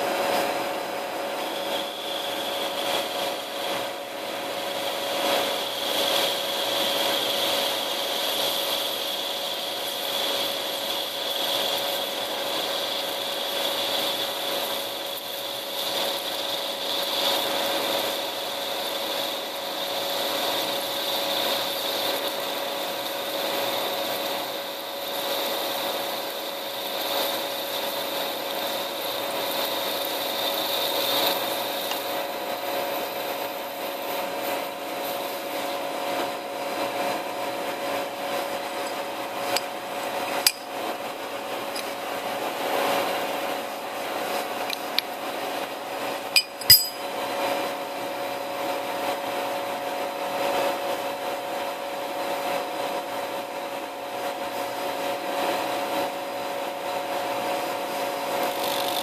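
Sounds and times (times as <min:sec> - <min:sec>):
lathe spindle humming whine: 0:00.0 - 0:47.0, 0:55.5 - 0:59.0.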